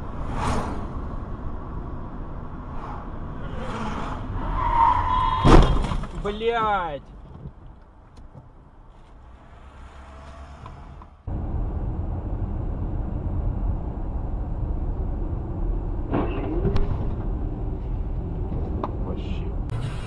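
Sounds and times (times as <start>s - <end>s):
car road and engine rumble: 0.0s - 20.0s.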